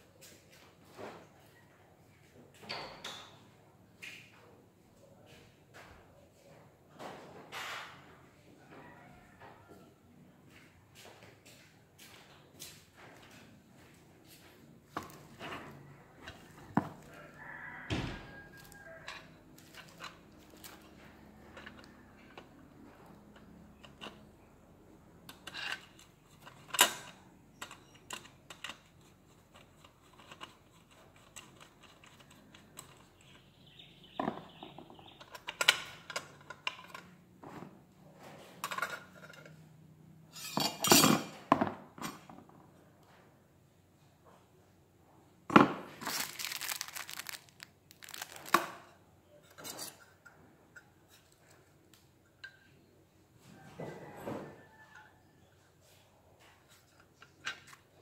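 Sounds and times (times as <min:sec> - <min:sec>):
bubble wrap and plastic crinkling: 0:45.9 - 0:48.9.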